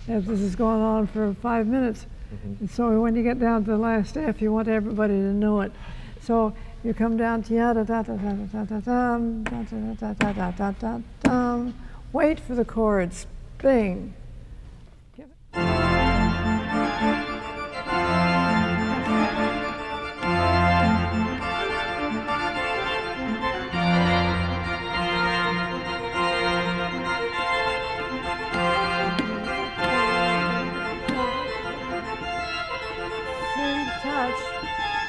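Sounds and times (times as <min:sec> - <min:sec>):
organ playing chords: 0:15.5 - 0:35.0.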